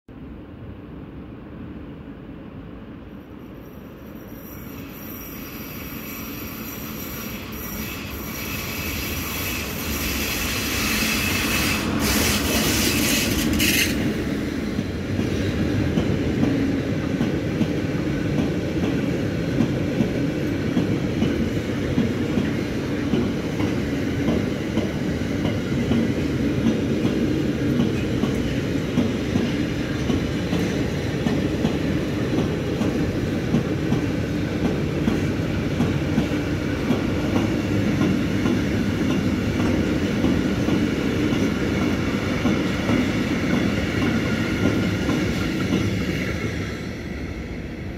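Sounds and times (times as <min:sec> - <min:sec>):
high wheel squeal: 0:04.0 - 0:14.0
train wheels clattering on rails: 0:04.3 - 0:47.0.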